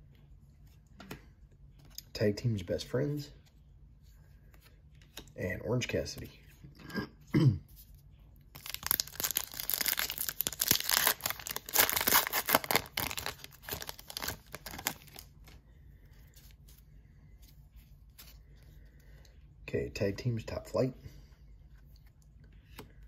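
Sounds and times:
foil wrapper tearing and crinkling: 0:08.5 - 0:15.3.

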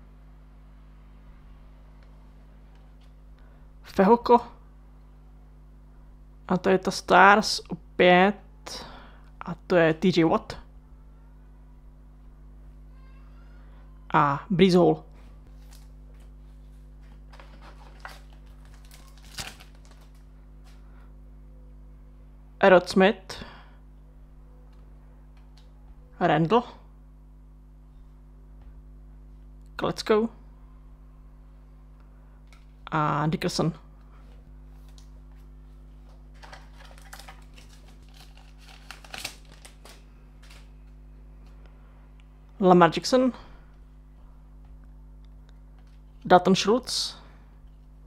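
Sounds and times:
low electrical hum: 0:00.0 - 0:48.0
foil wrapper crinkling: 0:17.1 - 0:20.8, 0:36.3 - 0:41.0.

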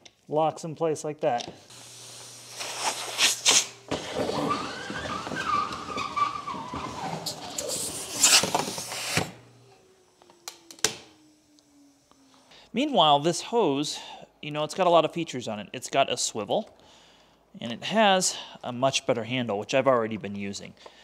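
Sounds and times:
vacuum air rushing and whistling: 0:01.7 - 0:12.5
power unit winding down hum: 0:01.7 - 0:12.6.

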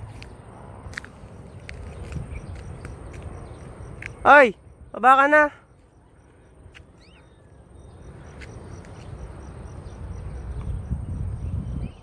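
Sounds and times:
wind buffeting microphone: 0:00.0 - 0:05.0, 0:06.0 - 0:12.0
faint chirp: 0:05.6 - 0:12.0.

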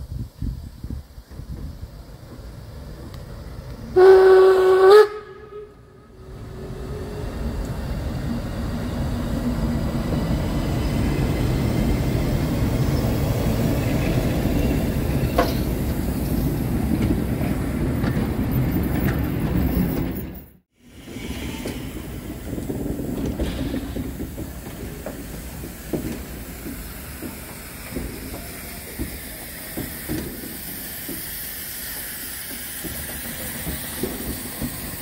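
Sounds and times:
train running rumble: 0:00.0 - 0:35.0
steam locomotive whistle blast: 0:04.0 - 0:07.6.

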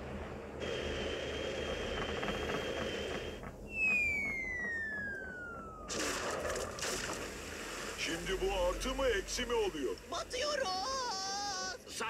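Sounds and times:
rain hiss: 0:00.0 - 0:03.6, 0:05.9 - 0:11.9
falling cartoon whistle: 0:03.7 - 0:06.8
flare fizzing whoosh with whistle: 0:03.7 - 0:08.1.

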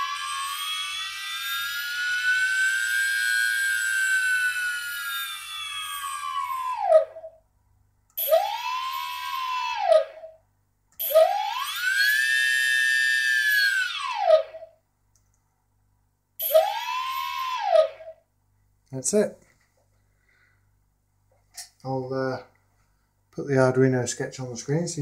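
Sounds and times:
electric motor whining: 0:00.0 - 0:06.8.

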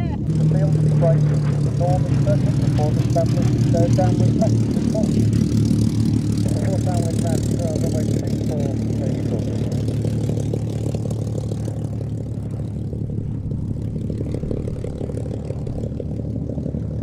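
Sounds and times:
propeller plane engine: 0:00.0 - 0:17.0.

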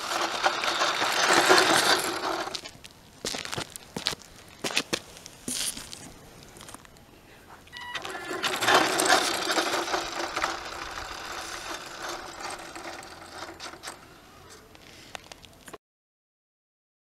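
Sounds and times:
rc car motor whirring: 0:00.0 - 0:02.6, 0:07.8 - 0:14.6.

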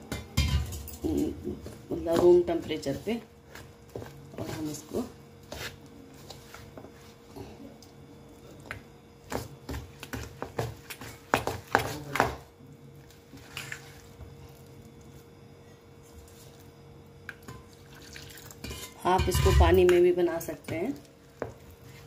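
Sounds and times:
spoon scraping metal bowl: 0:18.6 - 0:19.8.

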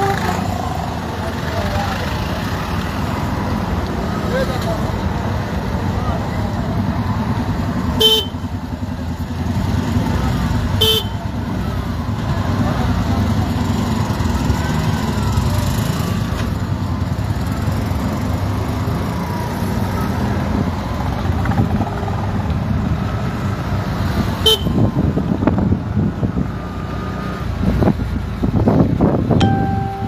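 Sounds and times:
traffic engines and road rumble: 0:00.0 - 0:30.0
car horn toots: 0:08.0 - 0:08.4, 0:10.8 - 0:11.2.

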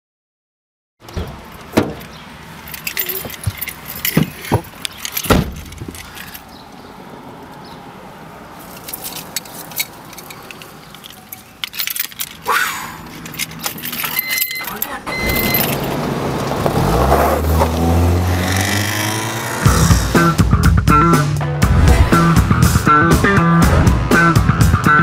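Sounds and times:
metallic jangling: 0:01.4 - 0:06.6, 0:08.6 - 0:16.0.

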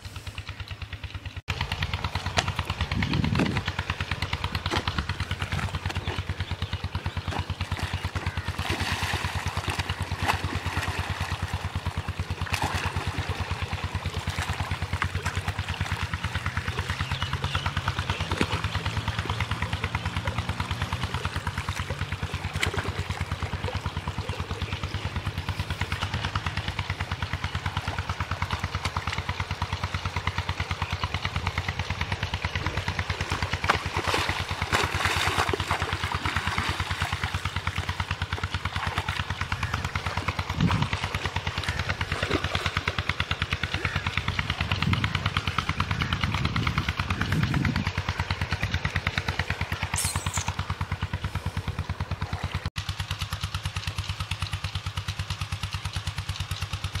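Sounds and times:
engine running steadily: 0:00.0 - 0:57.0.

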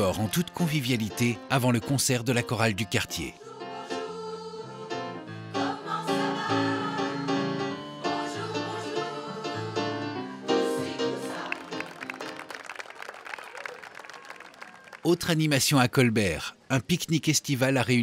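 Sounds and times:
mixed choir singing: 0:03.2 - 0:12.1.

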